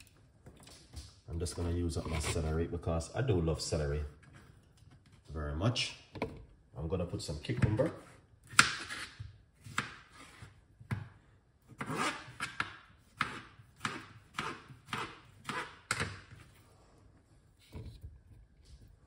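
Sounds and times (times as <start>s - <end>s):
knife chopping cucumber: 11.8s - 16.1s.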